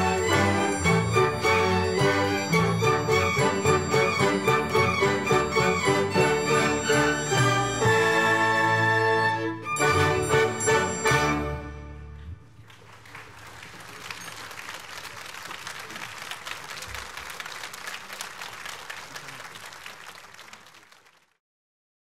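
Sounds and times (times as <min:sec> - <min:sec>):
audience applauding: 0:12.2 - 0:21.4.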